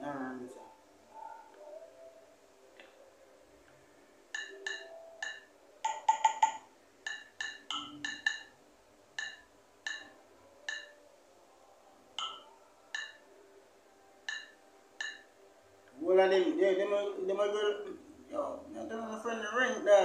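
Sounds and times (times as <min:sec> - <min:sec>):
marimba-like phone ringtone: 0:04.4 - 0:06.7.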